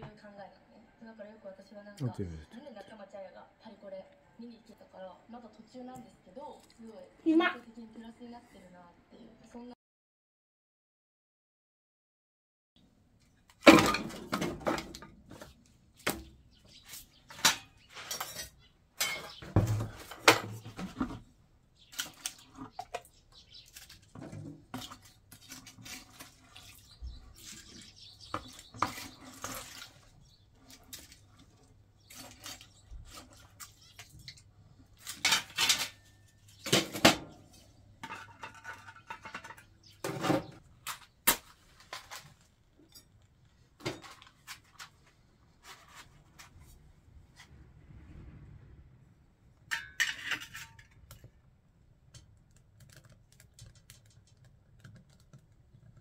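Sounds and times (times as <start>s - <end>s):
stove lids clanking and scraping: 17.3s - 21.2s, 35.0s - 40.6s, 49.7s - 51.0s.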